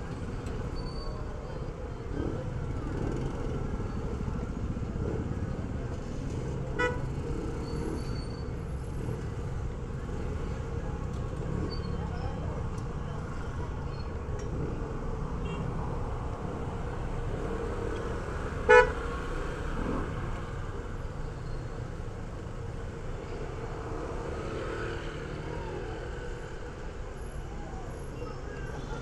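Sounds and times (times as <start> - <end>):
street traffic noise: 0.0 - 29.0
vehicle horn beep: 6.8 - 7.1, 15.4 - 15.7, 18.7 - 19.0.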